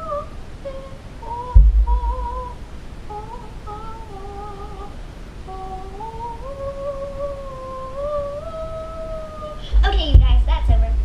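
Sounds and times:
girl humming: 0.0 - 10.6.

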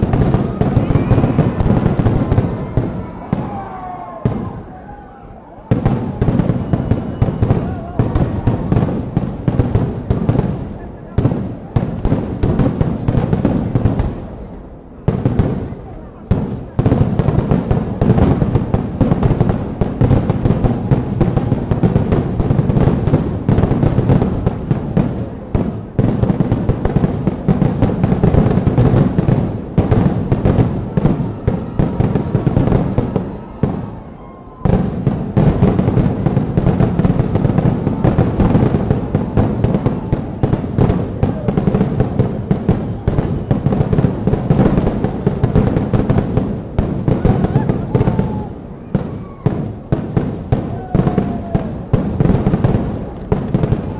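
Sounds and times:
fireworks banging rapidly: 0.0 - 5.1, 5.7 - 53.9.

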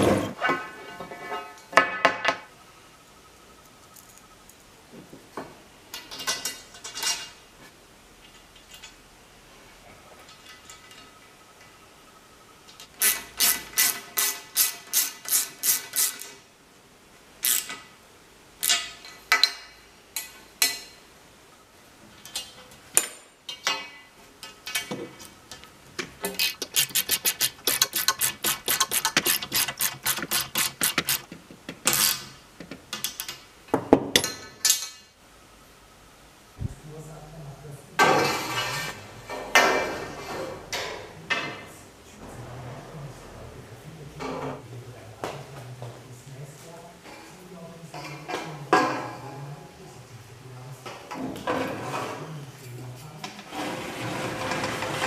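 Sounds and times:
ratchet wrench clicking: 13.0 - 16.3, 17.4 - 17.8, 26.3 - 31.3, 31.9 - 32.2.

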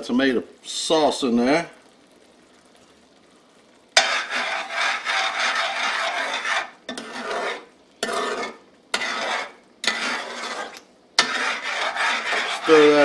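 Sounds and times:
spoon scraping metal pot: 4.0 - 13.0.

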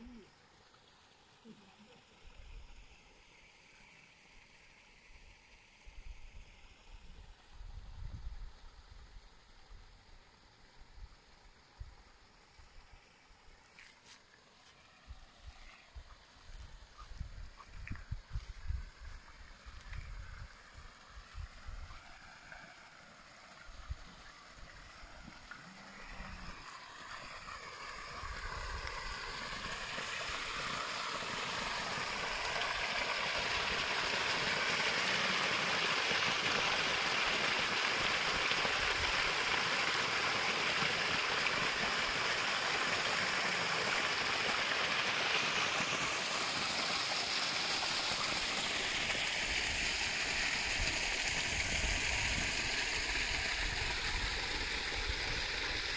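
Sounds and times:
water splashing onto stones: 23.7 - 55.9.

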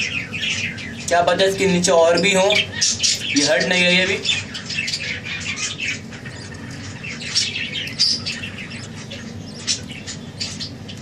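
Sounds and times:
budgerigars chattering and squawking: 0.0 - 11.0.

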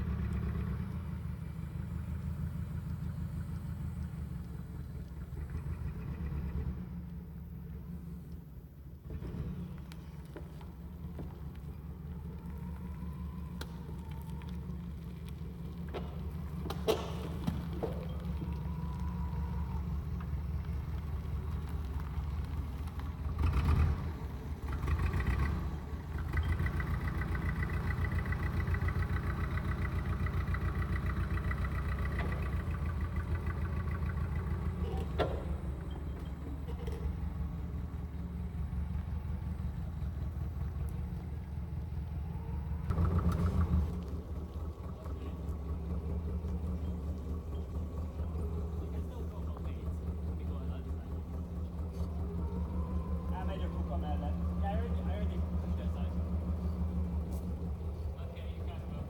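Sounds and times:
forklift engine running: 0.0 - 59.0.

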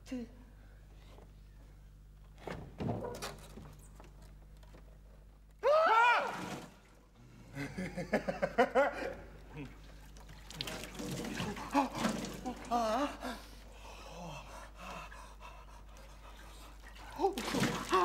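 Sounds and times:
man crying out: 5.6 - 6.5, 11.4 - 14.5.

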